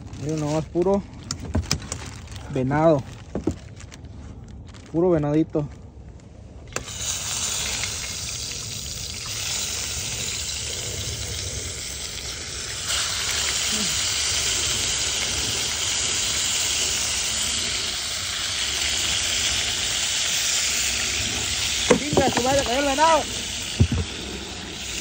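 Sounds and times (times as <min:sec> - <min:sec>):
meat sizzling in a skillet: 0:06.9 - 0:25.0.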